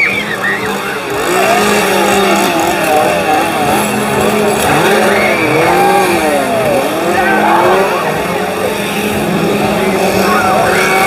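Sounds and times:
motor revving whines: 0.0s - 11.0s.

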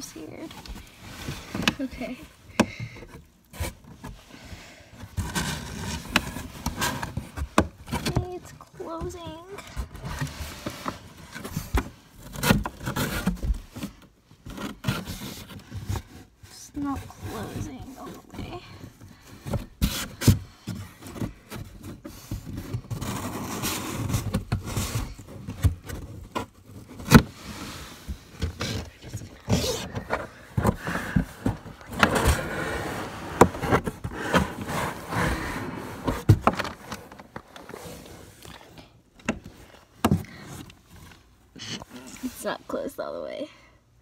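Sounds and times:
cardboard rustling: 0.0s - 42.5s
cardboard flaps scraping: 5.0s - 38.7s.

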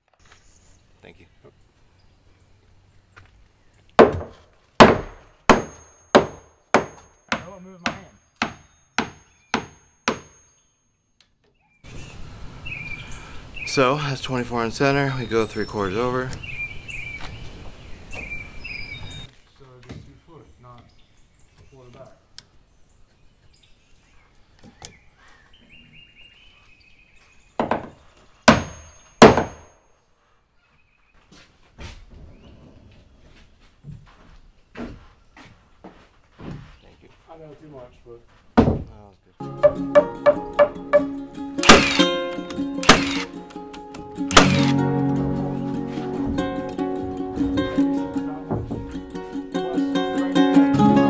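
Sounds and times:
hammer striking wood: 4.0s - 10.4s, 27.6s - 29.7s, 38.6s - 38.9s, 39.6s - 42.1s, 42.8s - 43.2s, 44.3s - 44.6s.

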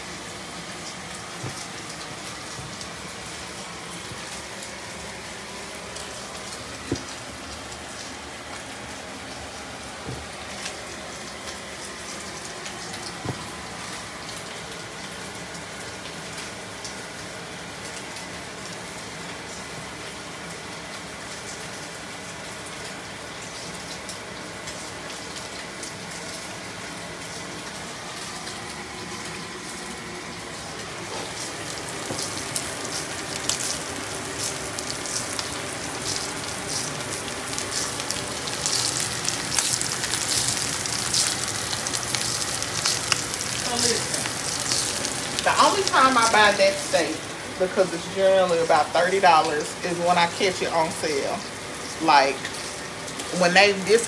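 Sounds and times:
steak sizzling in skillet: 23.2s - 54.0s.

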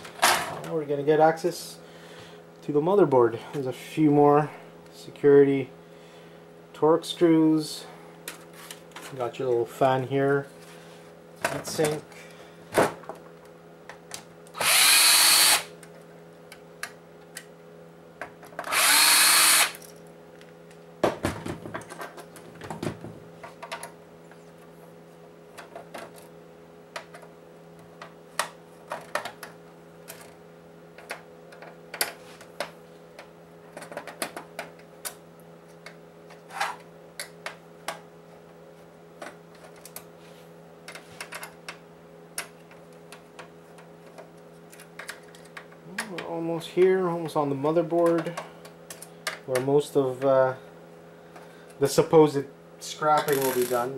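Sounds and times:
cordless drill spinning out screws: 14.6s - 15.7s, 18.6s - 19.8s, 53.2s - 53.8s.

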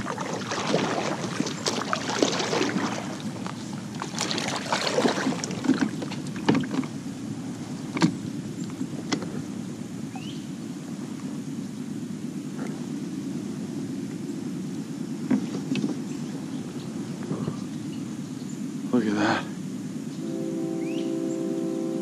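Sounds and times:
kayak splashing water: 0.0s - 10.3s.

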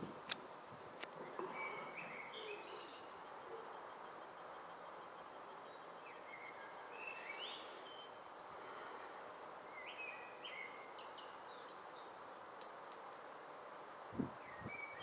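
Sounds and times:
faint outdoor background noise: 0.0s - 15.0s
birds whistling: 1.2s - 3.9s.

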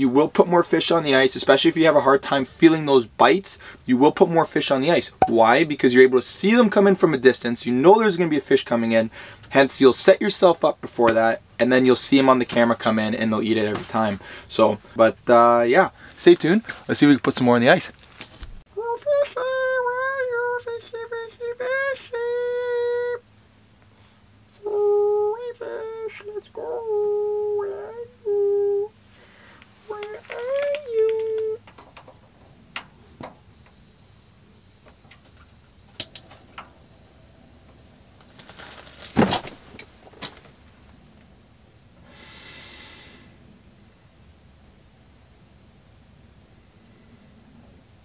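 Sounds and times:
soft rustling hiss: 0.0s - 36.9s, 37.6s - 48.0s
man hooting through cupped hand: 24.6s - 31.7s.

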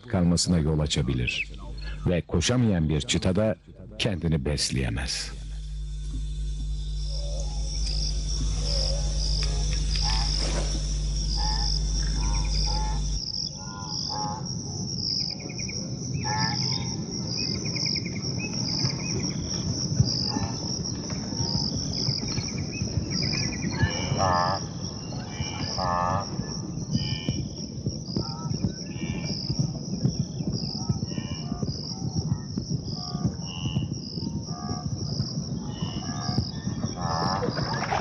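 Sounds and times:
low steady hum: 0.0s - 14.0s
insects chirping: 0.0s - 38.0s.

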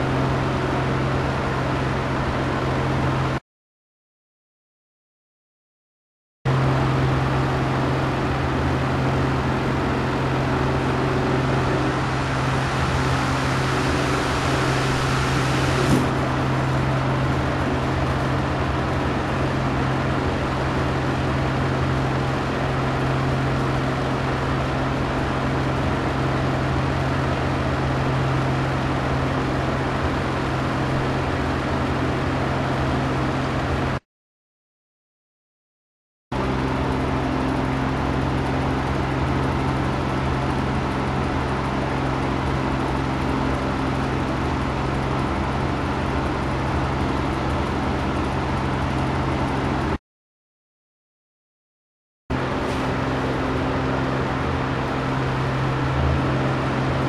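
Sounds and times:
electric fan running: 6.5s - 34.0s, 36.4s - 50.0s, 52.3s - 57.0s.

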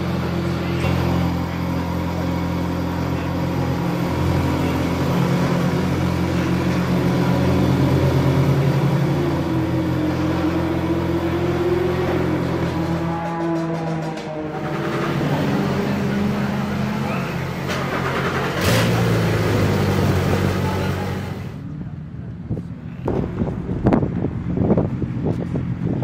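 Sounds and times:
race car engines droning: 0.0s - 26.0s.

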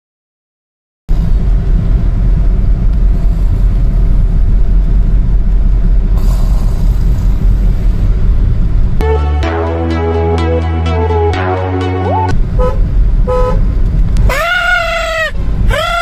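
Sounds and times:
low rumble of engine and road: 1.1s - 16.0s
hiss: 6.2s - 8.1s.

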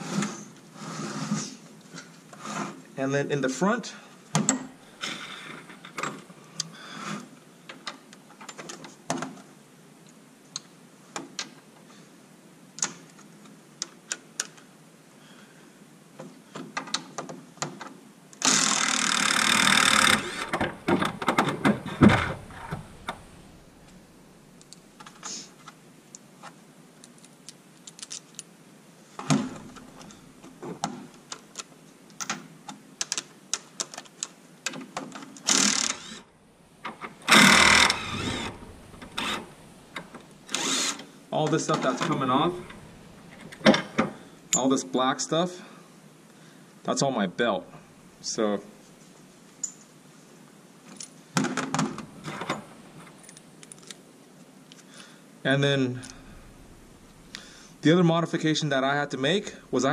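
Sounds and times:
cordless power driver running: 18.5s - 24.1s, 35.5s - 41.0s, 42.4s - 43.6s.

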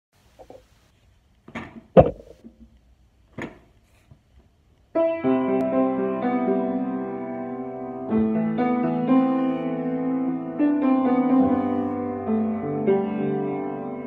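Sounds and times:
short knocks: 1.5s - 2.7s
piano chords: 5.0s - 14.0s.

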